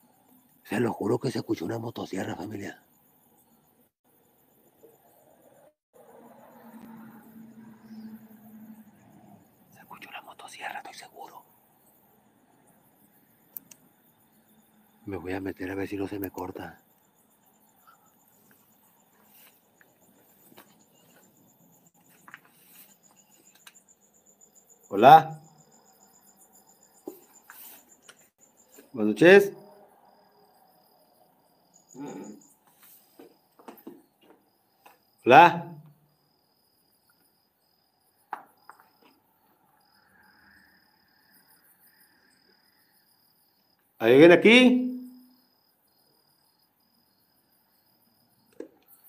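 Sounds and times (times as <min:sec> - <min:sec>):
faint crickets chirping: 0:00.0 - 0:49.0
faint ticks: 0:13.4 - 0:13.9, 0:22.0 - 0:24.0
sharp click: 0:13.5 - 0:13.8
faint clicks: 0:13.5 - 0:13.9, 0:22.1 - 0:23.8.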